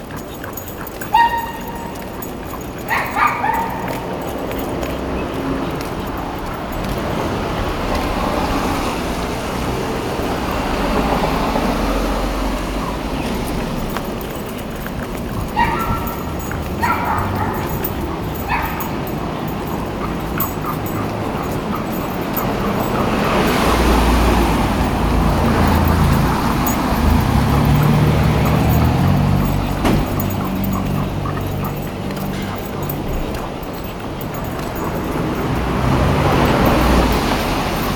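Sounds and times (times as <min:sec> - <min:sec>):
dog breathing noisily: 0:00.0 - 0:37.9
dog whimpering: 0:15.2 - 0:35.1.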